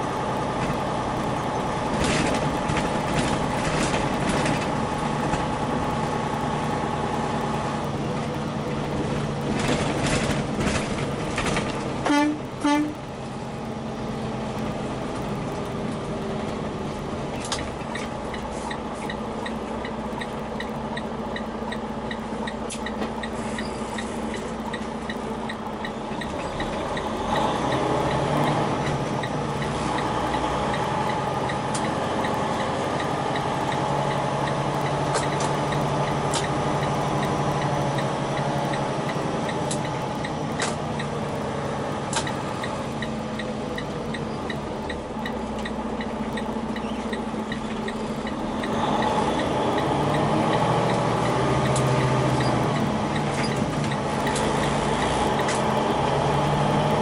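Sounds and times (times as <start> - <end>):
truck engine running: 0.0 - 57.0
horn toots: 12.0 - 13.0
turn signal clicking: 17.5 - 23.4, 24.0 - 53.3.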